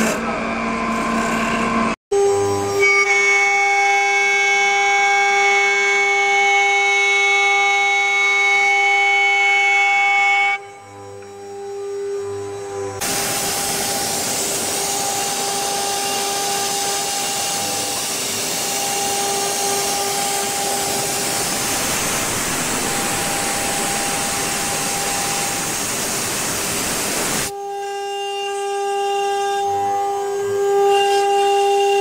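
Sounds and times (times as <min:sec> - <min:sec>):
lathe spindle high whine: 0:00.2 - 0:32.0
hiss of wood cutting: 0:13.0 - 0:27.5.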